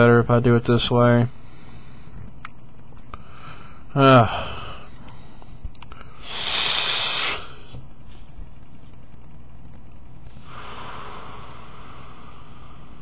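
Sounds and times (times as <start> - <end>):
low steady background hum: 0.0 - 13.0
breathy hiss of blown smoke: 6.1 - 7.6.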